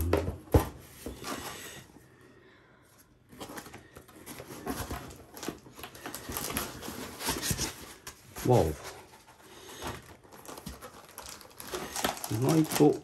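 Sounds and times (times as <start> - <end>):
paper and foam rustling: 3.3 - 13.0.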